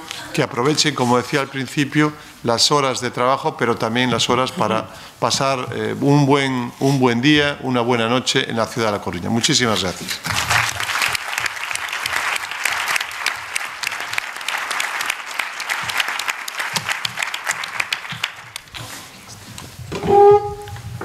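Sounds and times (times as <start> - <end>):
audience applauding: 10.1 - 18.8.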